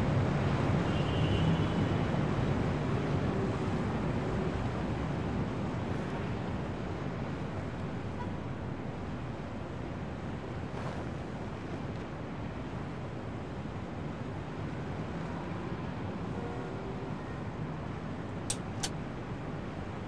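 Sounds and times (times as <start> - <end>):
wind rushing through windows: 1.8 - 16.3.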